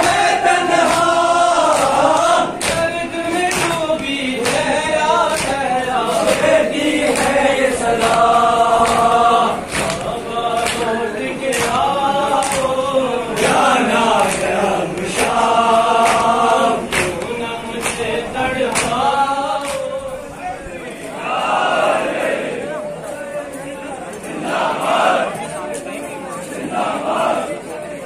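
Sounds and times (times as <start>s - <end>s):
hands slapping chests: 0.0s - 12.8s, 14.2s - 19.9s
men chanting in unison: 0.0s - 22.8s, 24.3s - 25.4s, 26.6s - 27.8s.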